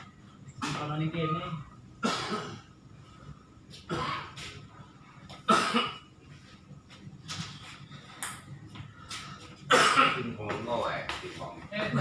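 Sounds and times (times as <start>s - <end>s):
person coughing: 2.0s - 2.7s, 3.9s - 4.5s, 5.4s - 6.1s, 9.7s - 10.4s.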